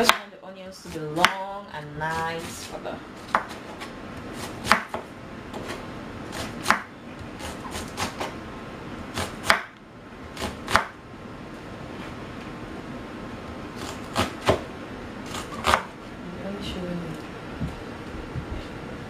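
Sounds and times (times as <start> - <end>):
knife slicing onion on wooden board: 2.0 - 8.4, 9.1 - 11.0, 13.8 - 14.6, 15.2 - 15.9.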